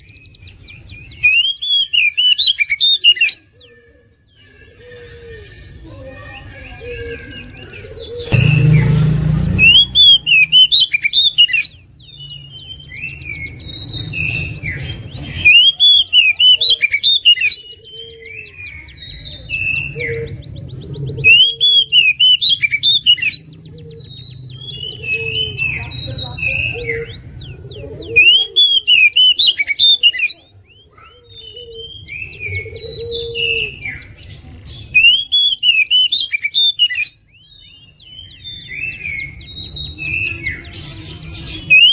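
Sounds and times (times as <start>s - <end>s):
bird singing whistled phrases: 0.0s - 3.7s, 9.6s - 40.8s, 41.4s - 41.9s
harsh noisy burst: 8.3s - 11.0s.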